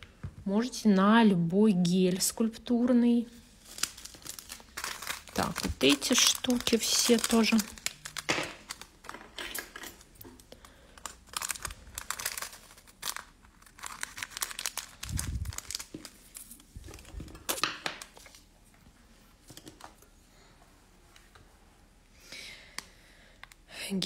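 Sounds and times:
plastic bag crinkling and rustling: 3.3s - 18.6s.

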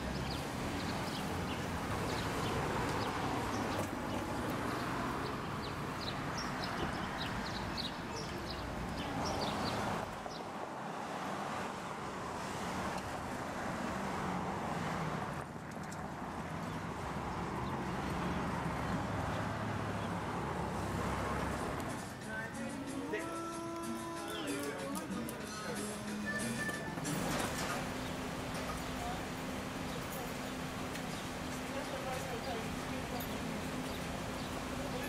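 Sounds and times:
small birds chirping: 0.0s - 10.5s, 27.9s - 35.0s
traffic noise: 0.0s - 35.0s.

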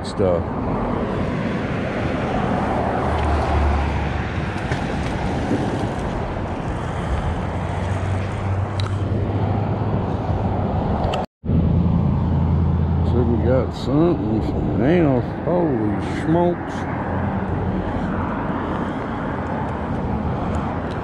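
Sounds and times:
wind noise on microphone: 0.6s - 11.3s.

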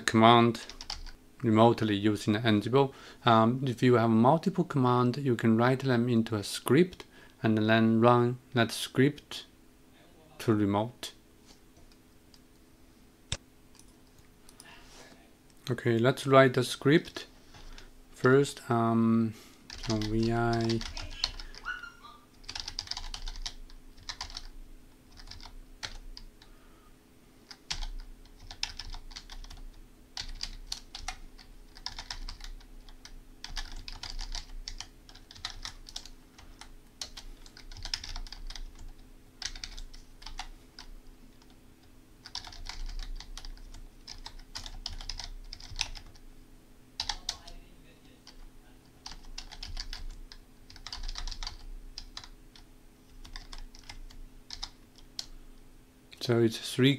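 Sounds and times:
steady low hum: 0.0s - 56.9s
typing on computer keyboard: 0.7s - 1.2s, 19.7s - 21.7s, 22.4s - 24.5s, 25.1s - 26.3s, 27.5s - 41.6s, 42.2s - 46.2s, 47.0s - 47.4s, 49.0s - 55.3s.

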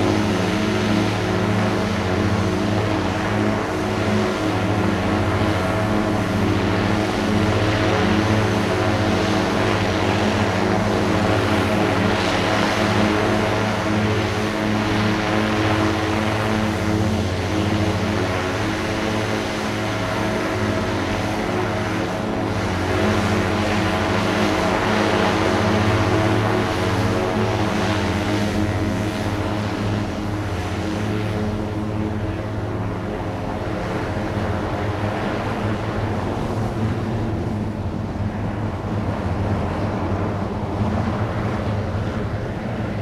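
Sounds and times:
electric aircraft rotors whirring: 0.0s - 43.0s.

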